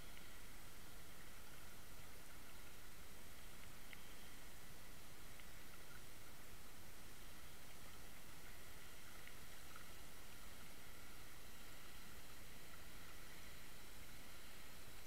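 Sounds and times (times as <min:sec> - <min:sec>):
faint ticks: 0:00.0 - 0:15.0.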